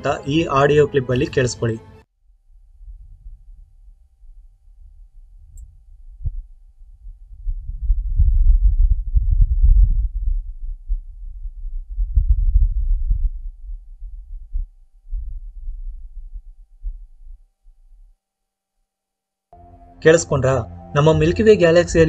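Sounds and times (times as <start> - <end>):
low rumble of wind gusts: 2.5 - 17.4.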